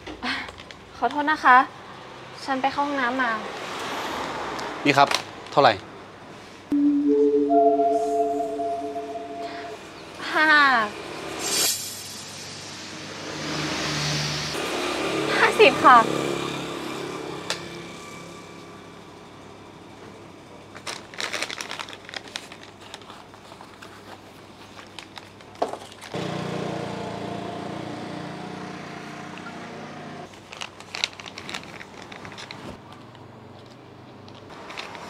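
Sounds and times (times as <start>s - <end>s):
plastic packaging crinkling: 20.7s - 26.1s, 30.3s - 32.8s.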